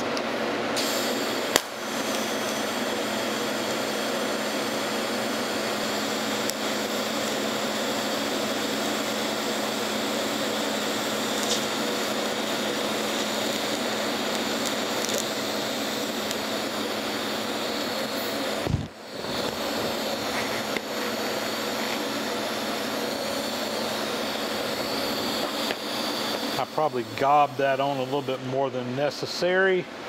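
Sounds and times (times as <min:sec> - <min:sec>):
welding arc strike click: 0:00.0 - 0:02.7, 0:06.3 - 0:07.4, 0:11.3 - 0:16.5, 0:25.3 - 0:28.3
welding arc buzzing hiss: 0:00.0 - 0:30.0.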